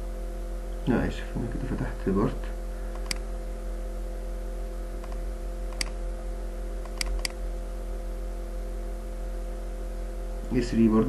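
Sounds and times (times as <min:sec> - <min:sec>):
steady electrical hum: 0:00.0 - 0:11.0
computer mouse clicks: 0:02.9 - 0:03.2, 0:05.0 - 0:06.0, 0:06.8 - 0:07.4.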